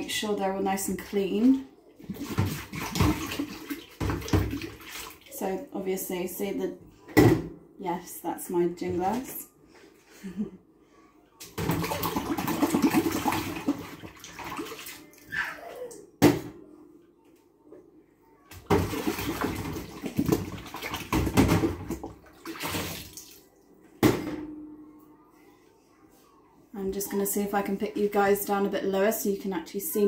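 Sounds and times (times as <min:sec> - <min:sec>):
water sloshing in sink: 0:01.2 - 0:05.6, 0:11.4 - 0:15.3, 0:18.6 - 0:23.5.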